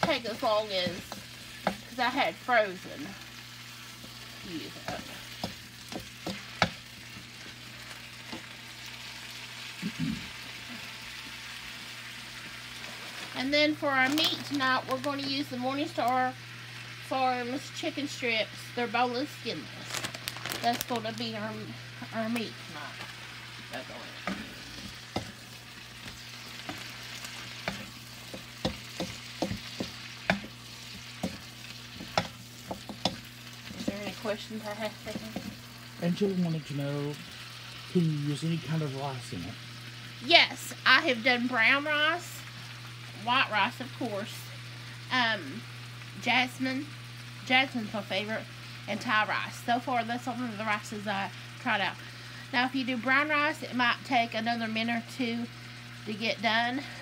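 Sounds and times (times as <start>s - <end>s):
vegetables sizzling in a wok: 0.0s - 57.0s
wooden spoon scraping a pan: 24.2s - 35.6s.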